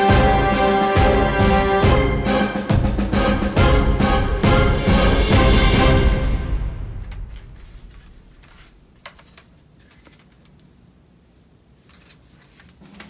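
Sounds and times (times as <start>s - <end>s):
background music: 0.0s - 8.3s.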